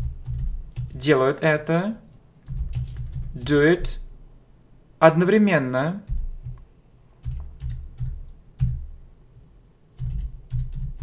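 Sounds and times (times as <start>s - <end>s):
computer keyboard typing: 0.0s - 1.0s, 2.4s - 3.4s, 6.1s - 6.6s, 7.2s - 8.9s, 10.0s - 11.0s.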